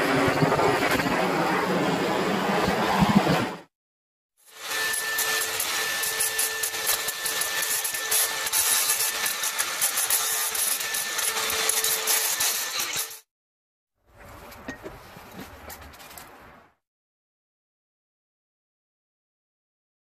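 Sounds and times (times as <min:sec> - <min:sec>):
angle grinder grinding wood: 0:04.5 - 0:13.3.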